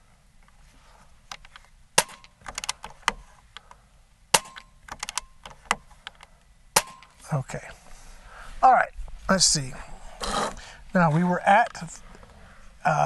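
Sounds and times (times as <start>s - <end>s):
rifle action clicks: 1.3s - 3.8s, 4.4s - 6.3s
air rifle shots: 2.0s - 3.2s, 4.3s - 5.9s, 6.8s - 7.2s.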